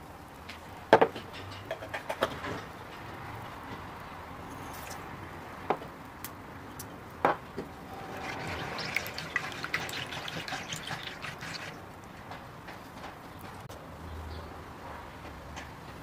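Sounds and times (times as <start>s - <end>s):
spatula stirring in wooden bowl: 8.1s - 11.8s
sugar tipped into milk: 8.1s - 11.8s.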